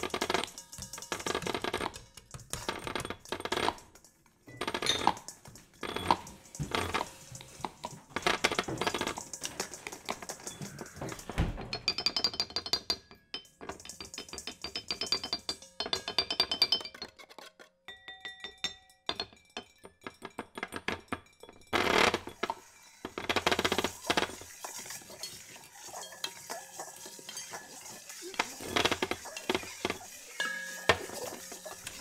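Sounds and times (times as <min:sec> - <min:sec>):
high-pitched tinkling: 0:30.3 - 0:32.0.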